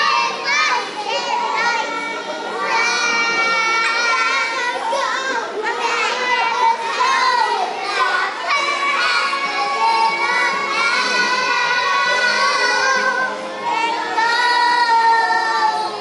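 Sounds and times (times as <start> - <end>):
young children singing: 0.0 - 16.0.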